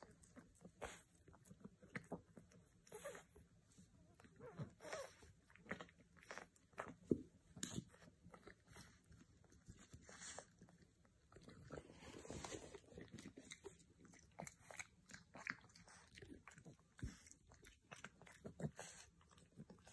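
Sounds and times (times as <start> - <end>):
puppy teeth crunching carrot: 4.2 - 19.9.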